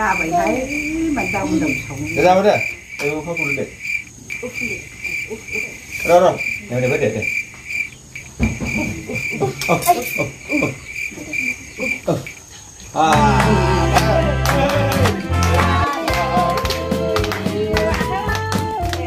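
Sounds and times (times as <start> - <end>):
cricket chirping: 0.0 - 15.4
soft voices: 8.8 - 19.0
loud music: 13.2 - 19.0.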